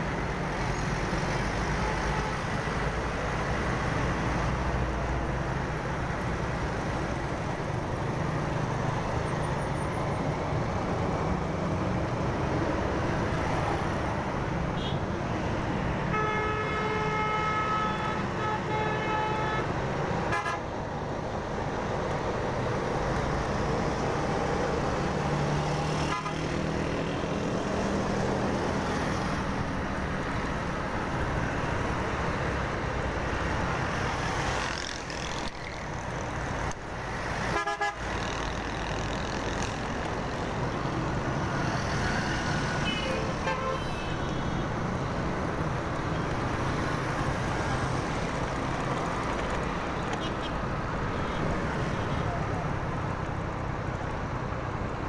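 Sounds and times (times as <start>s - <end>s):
vehicle horns honking: 16.1s - 19.7s, 20.3s - 20.6s, 37.5s - 38.0s, 42.7s - 44.6s.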